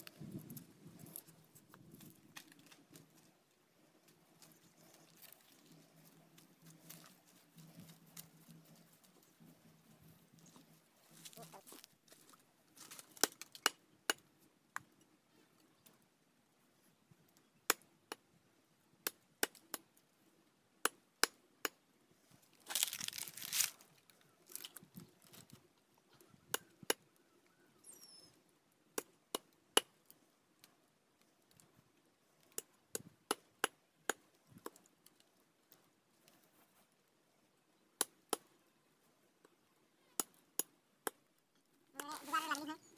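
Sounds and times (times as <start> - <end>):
rustling: 22.3 - 25.7.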